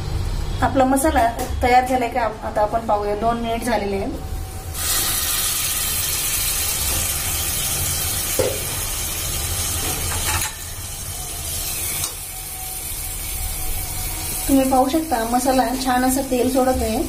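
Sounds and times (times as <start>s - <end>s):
masala sizzling in oil: 4.2s - 17.0s.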